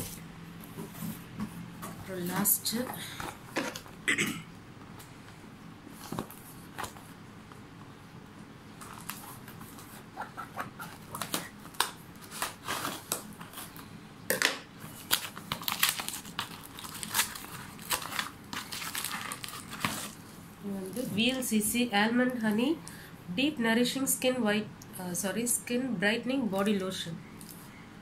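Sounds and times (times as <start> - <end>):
cardboard box tearing open: 15.1 - 20.2.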